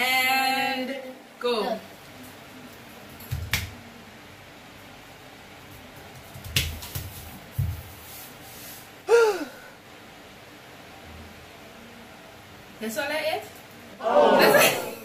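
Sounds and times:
person groaning: 9.1 - 9.7.

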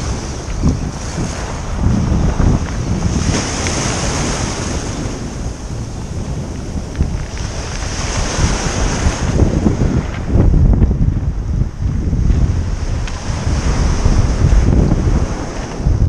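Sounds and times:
surf washing onto pebble beach: 0.0 - 10.4
wind buffeting microphone: 0.0 - 16.0.

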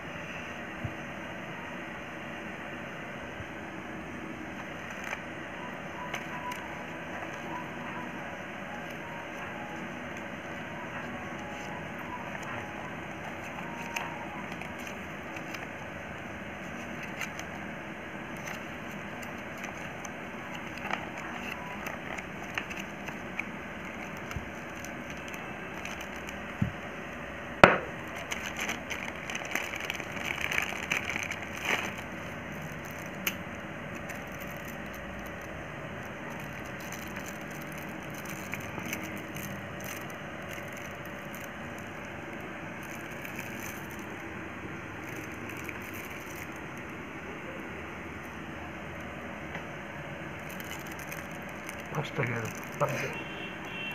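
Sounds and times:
steady background noise: 0.0 - 53.9
plastic bag and bubble wrap crinkling: 6.0 - 26.8, 27.9 - 47.0, 50.3 - 53.3.

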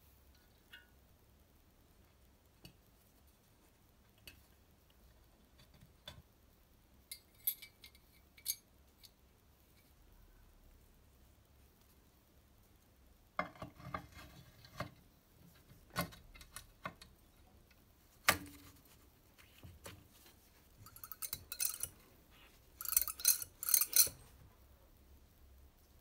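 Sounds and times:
metal parts clinking on casing: 20.8 - 22.0, 22.8 - 24.3.

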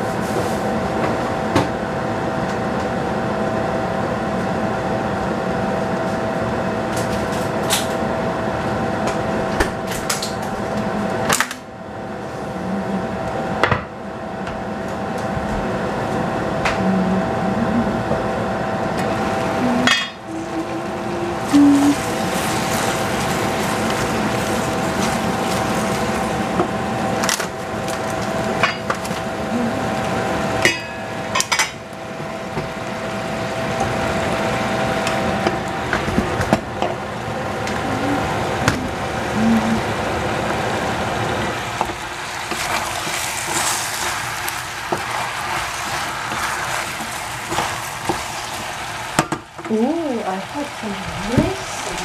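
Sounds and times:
vegetables sizzling in a saucepan: 19.1 - 31.2, 38.2 - 52.0.

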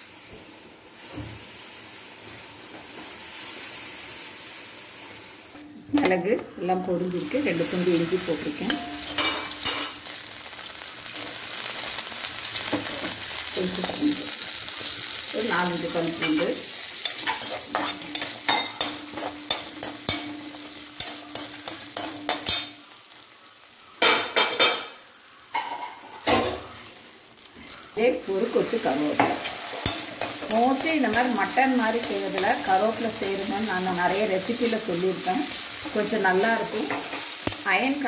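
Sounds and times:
spices sizzling in hot oil: 0.0 - 38.0.

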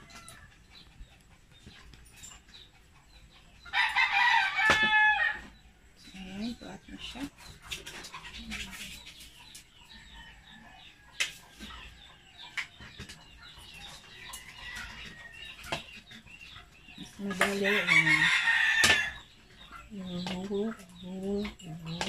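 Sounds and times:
fowl clucking and chirping: 0.0 - 22.0
rooster crowing: 3.7 - 5.5, 17.7 - 19.2.

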